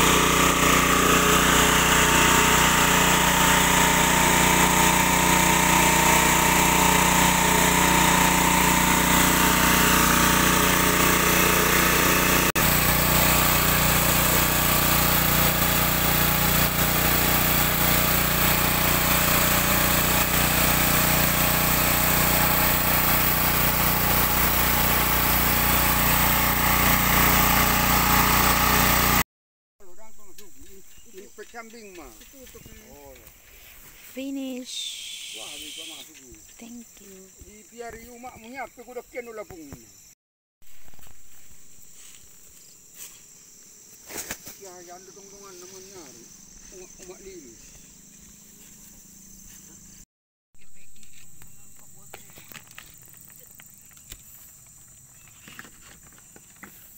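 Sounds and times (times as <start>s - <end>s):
small petrol engine running: 0.0s - 29.2s.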